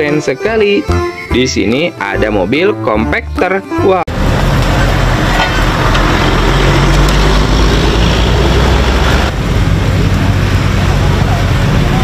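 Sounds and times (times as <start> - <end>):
street traffic: 0.0 - 12.0
road roller engine running: 4.1 - 12.0.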